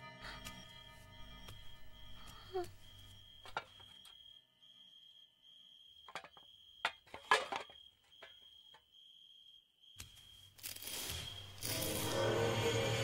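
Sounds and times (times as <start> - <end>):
eerie music: 0.0 - 3.4, 11.6 - 13.0.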